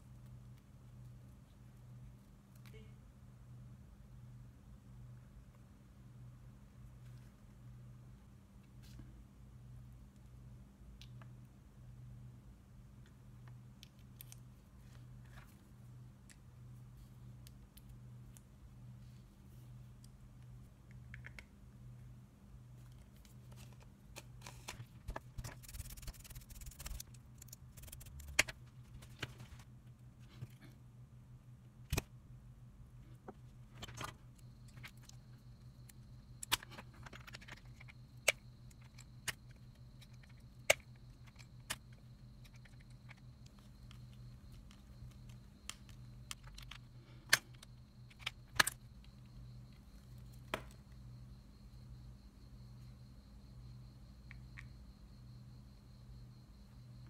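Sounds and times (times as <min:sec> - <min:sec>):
steady low hum: 0:14.4 - 0:54.2
small plastic parts clicking: 0:35.8 - 0:49.2.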